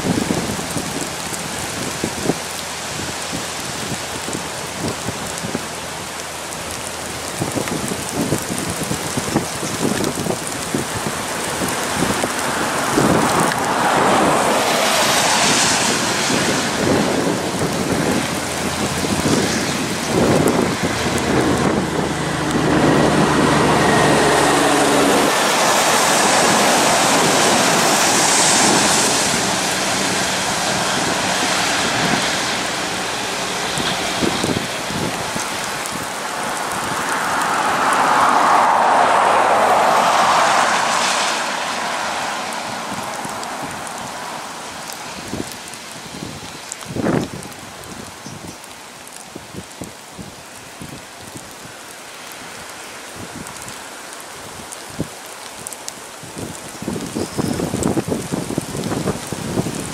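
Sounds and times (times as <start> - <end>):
wind buffeting microphone: 0.0 - 51.7, 53.1 - 59.9
steady rain: 0.0 - 59.9
tyres hissing on wet road: 0.0 - 59.9
truck engine: 9.8 - 45.8.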